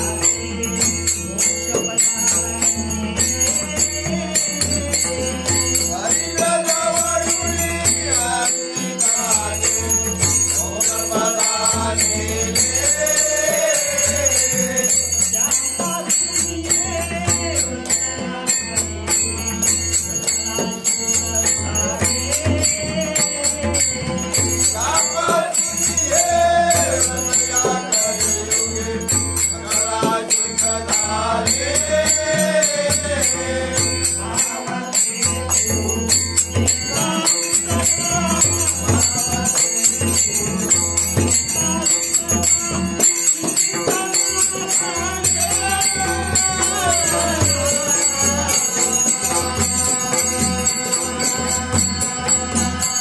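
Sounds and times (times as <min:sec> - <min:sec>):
group singing: 0:00.0 - 0:53.0
jingling percussion: 0:00.0 - 0:53.0
person singing into a microphone: 0:00.0 - 0:53.0
rhythmic hand-clapping: 0:00.0 - 0:53.0.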